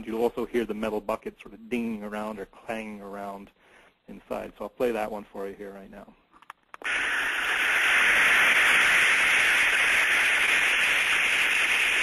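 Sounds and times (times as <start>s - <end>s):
steam hissing: 6.8s - 12.0s.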